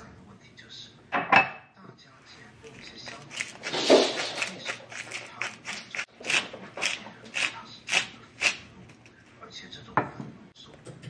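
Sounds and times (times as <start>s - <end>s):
knife scraping board: 2.8s - 9.1s.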